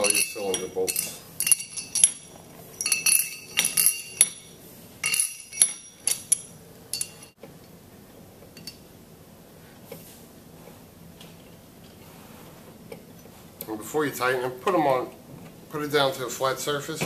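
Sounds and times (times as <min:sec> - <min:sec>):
metal bolts clinking: 0:00.0 - 0:07.4.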